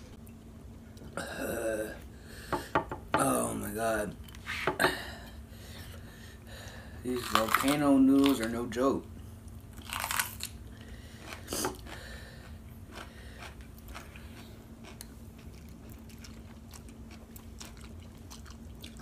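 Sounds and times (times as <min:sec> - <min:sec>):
crunchy chewing of pepper: 0:07.1 - 0:08.6, 0:09.7 - 0:19.0.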